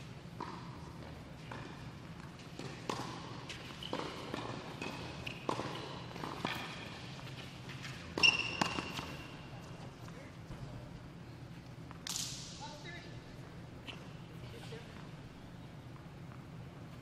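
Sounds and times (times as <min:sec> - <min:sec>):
shoes squeaking on court: 0:00.2 - 0:12.0, 0:13.5 - 0:17.0
tennis ball bouncing on court: 0:00.3 - 0:09.7
tennis ball hit by racquet: 0:02.5 - 0:06.9, 0:08.1 - 0:09.2.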